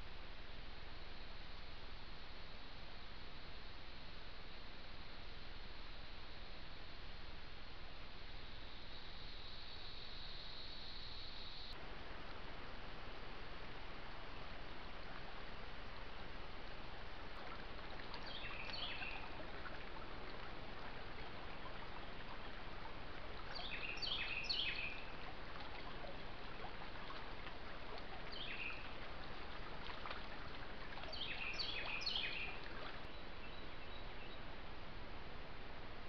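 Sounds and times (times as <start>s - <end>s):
creek water running: 11.8s - 33.7s
bird calling: 23.5s - 26.2s, 31.0s - 32.8s.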